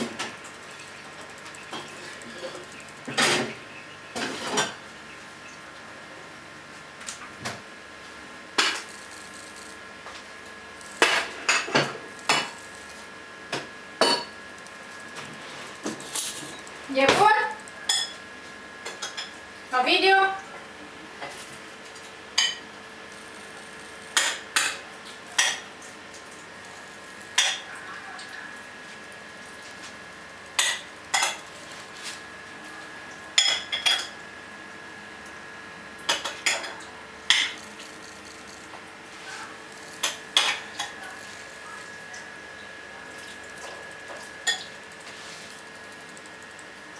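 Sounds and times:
stepper motor high-pitched whine: 0:08.6 - 0:18.0, 0:37.0 - 0:46.9.

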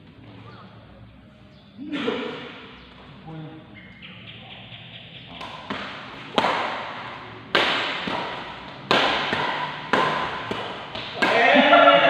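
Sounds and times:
rackets hitting shuttlecock: 0:05.3 - 0:12.0.

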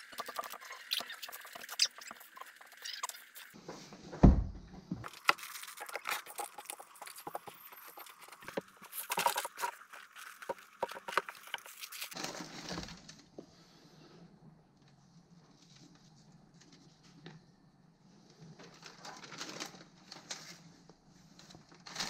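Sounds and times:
heavy thump: 0:04.1 - 0:05.0.

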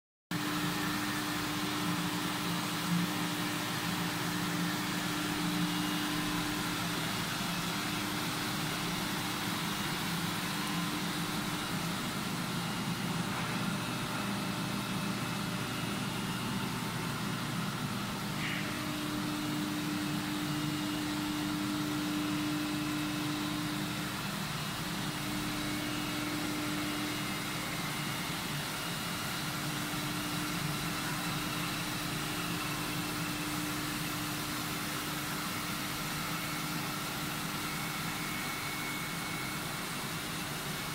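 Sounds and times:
dehumidifying dryer whirring: 0:00.3 - 0:40.9
low machine tone: 0:00.4 - 0:28.5.

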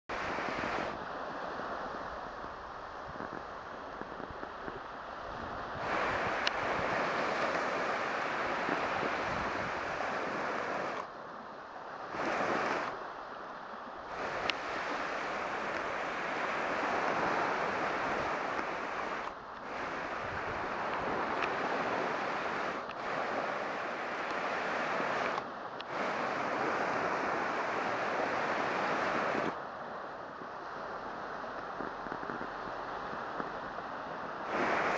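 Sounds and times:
surf washing onto shore: 0:00.1 - 0:34.9.

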